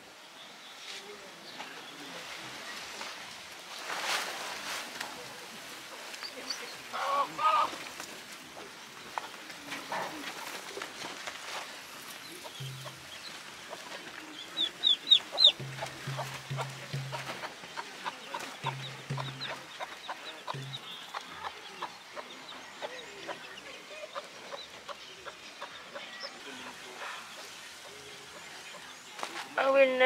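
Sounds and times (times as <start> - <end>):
chicks peeping: 6.2 - 29.5
hen clucking: 6.9 - 7.8, 12.2 - 29.3.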